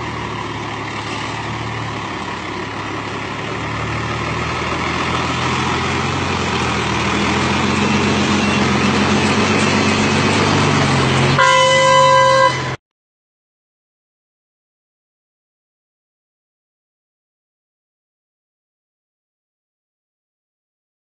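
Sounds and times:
truck diesel engine: 0:00.0 - 0:12.8
vehicle horn: 0:11.4 - 0:12.8.

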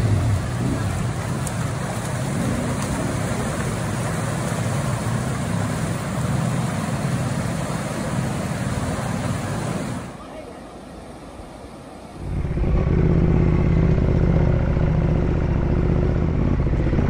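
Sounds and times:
river rushing over rocks: 0:00.0 - 0:12.2
motorcycle engine running: 0:12.2 - 0:17.0.

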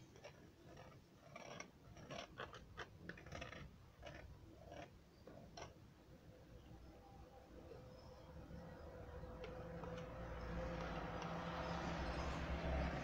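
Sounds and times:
palette knife scraping paint: 0:00.0 - 0:05.8.

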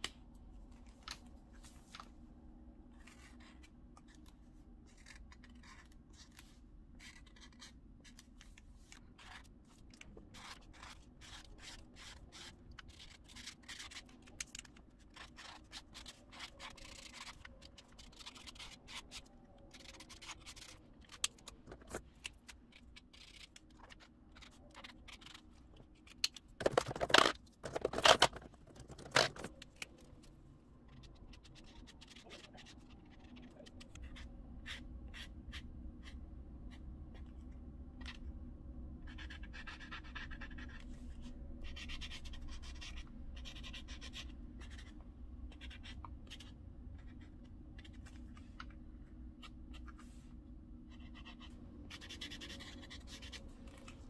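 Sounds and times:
scraping and rubbing on paper: 0:03.0 - 0:29.6
pen scratching on paper: 0:10.3 - 0:14.2, 0:39.0 - 0:44.9, 0:45.5 - 0:48.0, 0:50.9 - 0:53.9.

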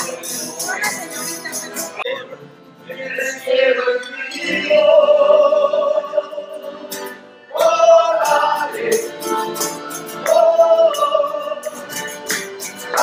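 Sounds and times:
tambourine jingling: 0:00.0 - 0:02.0, 0:08.1 - 0:13.0
men singing: 0:00.0 - 0:02.2, 0:02.8 - 0:13.0
strummed guitars: 0:00.0 - 0:13.0.

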